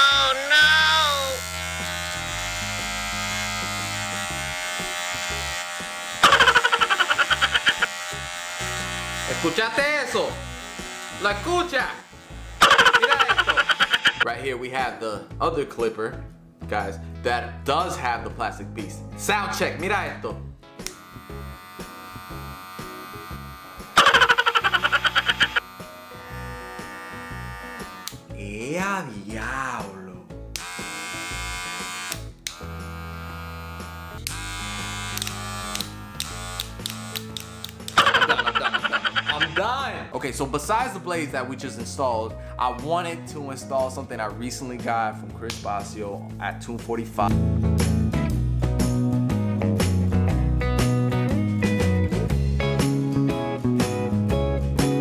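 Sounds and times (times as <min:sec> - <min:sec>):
hair clipper buzzing: 0:00.2 - 0:14.3, 0:20.8 - 0:28.3, 0:30.5 - 0:39.8
loud fast pulsing of clipper: 0:01.4 - 0:09.4, 0:12.3 - 0:14.2, 0:20.8 - 0:28.2, 0:30.6 - 0:39.6.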